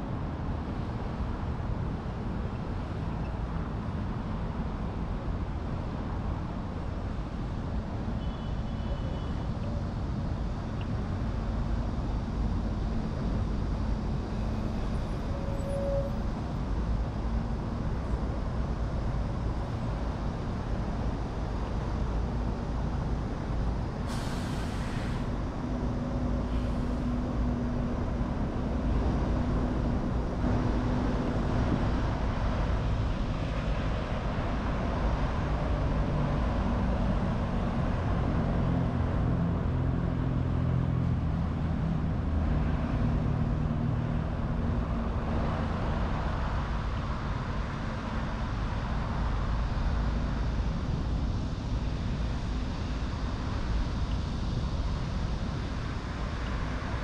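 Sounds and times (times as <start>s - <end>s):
road traffic rumble: 0.0s - 57.0s
vehicle engine hums: 0.0s - 57.0s.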